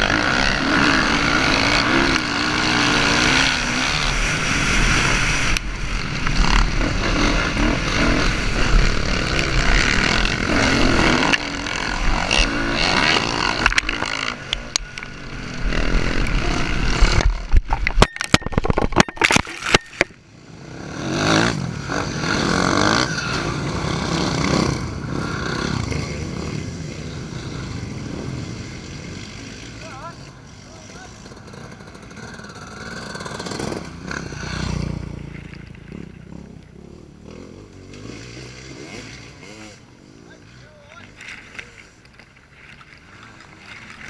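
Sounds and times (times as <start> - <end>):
motorbike engine revving: 0.0 - 17.7, 20.6 - 40.3.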